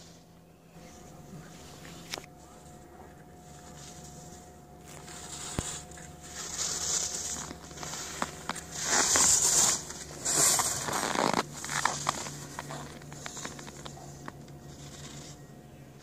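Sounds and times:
skis scraping on snow: 0:03.6 - 0:15.4.

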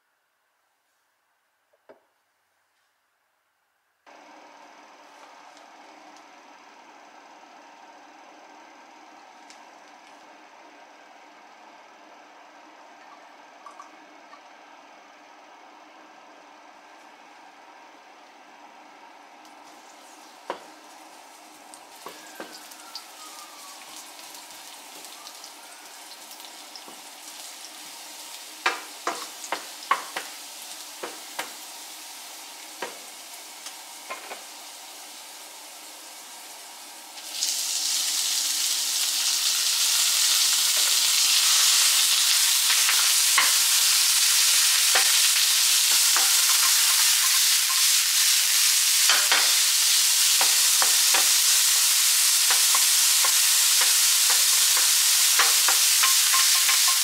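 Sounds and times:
garlic sizzling in oil: 0:19.4 - 0:57.0
meat sizzling loudly in pan: 0:19.6 - 0:57.0.

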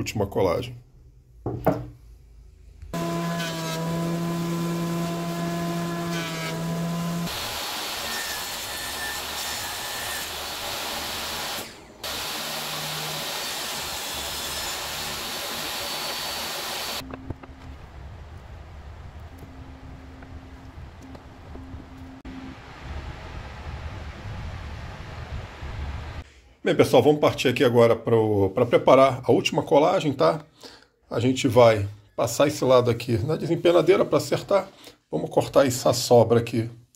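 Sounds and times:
saw blade cutting wood: 0:03.0 - 0:17.0
table saw motor hum: 0:03.0 - 0:17.0.

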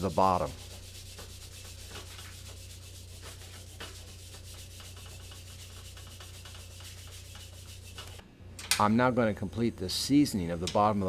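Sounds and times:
hand rubbing oil on wok: 0:00.0 - 0:08.2.

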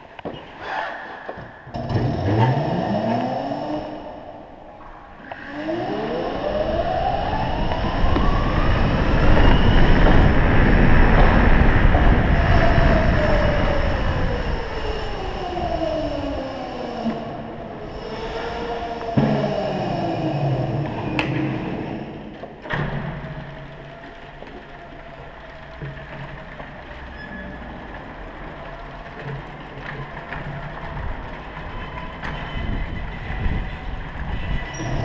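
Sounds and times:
broad rushing noise: 0:02.6 - 0:22.4
electric scooter motor whining: 0:03.0 - 0:22.3, 0:23.6 - 0:35.0.

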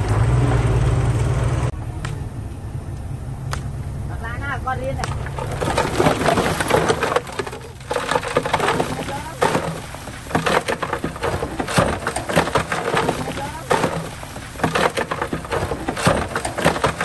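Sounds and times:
bulldozer engine hum: 0:00.0 - 0:17.0
soil and rock crunching: 0:03.5 - 0:17.0.

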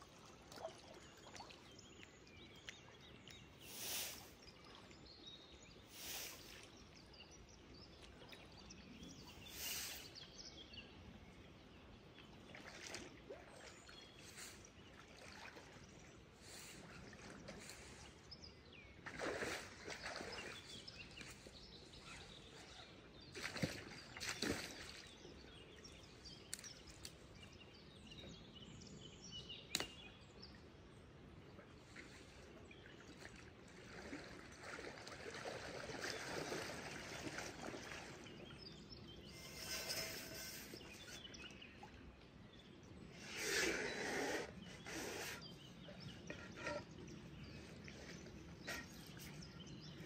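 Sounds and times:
stream water flowing: 0:00.0 - 0:06.9, 0:30.6 - 0:42.4.

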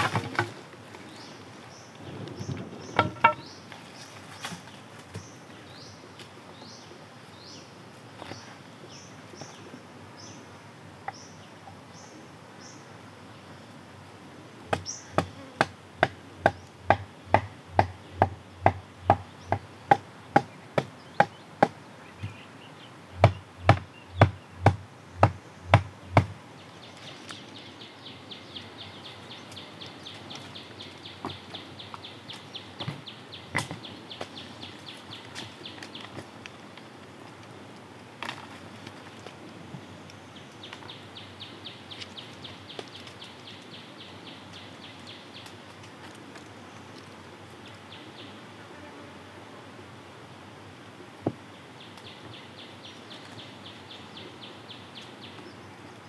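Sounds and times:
falling bird chirps: 0:01.2 - 0:05.4.

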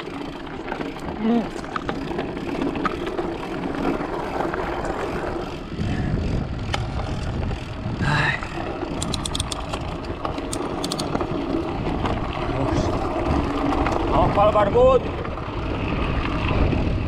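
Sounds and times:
rumbling drone of off-road riding: 0:00.0 - 0:17.0
wind on microphone: 0:04.7 - 0:17.0
small sharp clicks: 0:09.0 - 0:09.8, 0:10.5 - 0:11.1.

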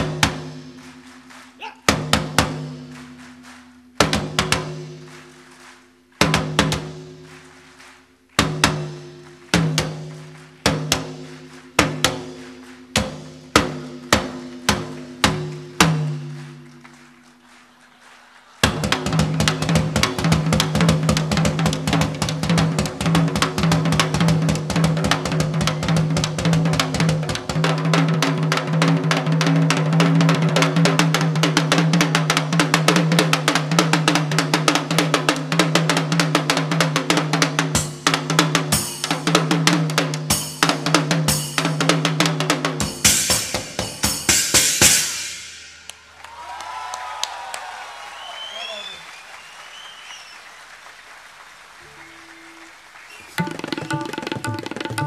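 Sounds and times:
tabla strokes: 0:00.0 - 0:05.4, 0:53.4 - 0:55.0
drum kit playing: 0:00.0 - 0:17.7, 0:18.5 - 0:46.2, 0:53.4 - 0:55.0.

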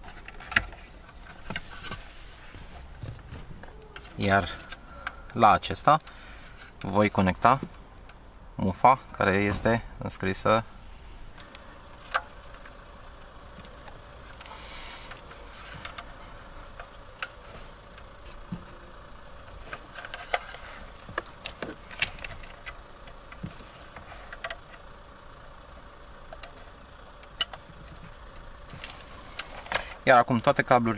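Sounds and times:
low hum: 0:00.0 - 0:30.1
plastic plugs clicking and rattling: 0:26.3 - 0:29.9.

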